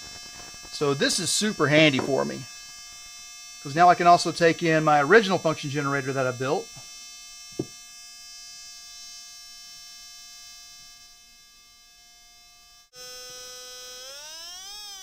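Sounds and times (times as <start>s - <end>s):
electronic test tone: 13.0s - 15.0s.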